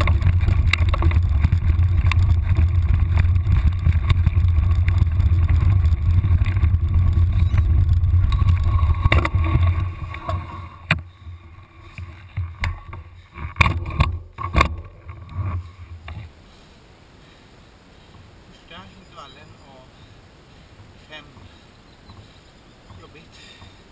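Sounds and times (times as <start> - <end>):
bike clicks and knocks: 0.0 - 11.1, 11.9 - 16.3
wind buffeting microphone: 0.0 - 12.9
bike trail rumble: 0.0 - 23.9.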